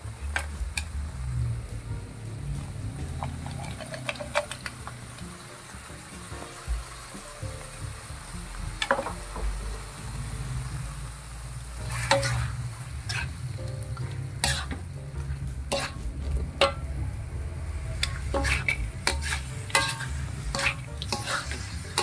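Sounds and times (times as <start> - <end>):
food sizzling: 0.0 - 22.0
low rumble: 0.1 - 5.4, 7.8 - 22.0
metal spatula scraping a wok: 3.1 - 4.9, 11.8 - 17.0, 17.7 - 22.0.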